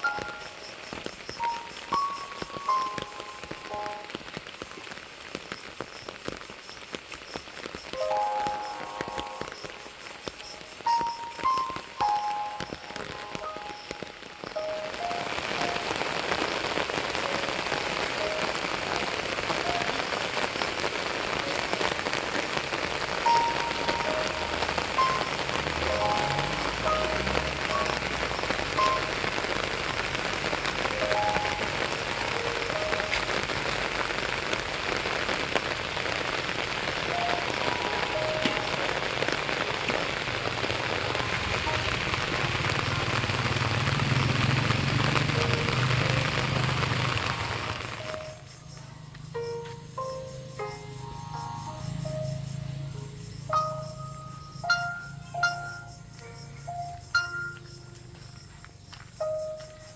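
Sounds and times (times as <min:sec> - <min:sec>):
rain-like hiss: 0:00.0 - 0:59.9
sparse melody of single notes: 0:08.0 - 0:33.6, 0:36.9 - 0:43.2, 0:49.4 - 0:58.2.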